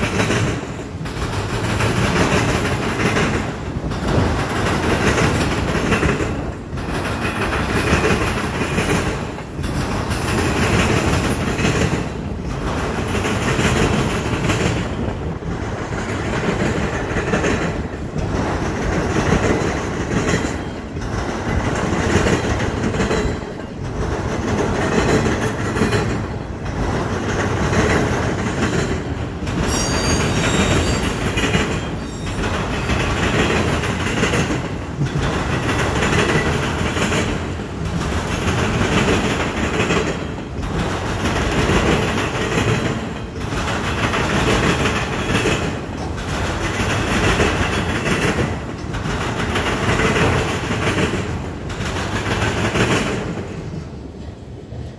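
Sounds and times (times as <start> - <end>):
freight train rolling past: 0.0 - 54.9.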